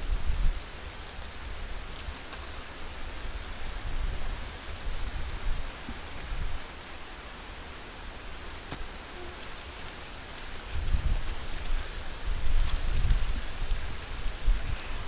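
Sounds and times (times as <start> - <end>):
wind rustling hiss: 0.0 - 15.0
wind buffeting microphone: 10.6 - 15.0.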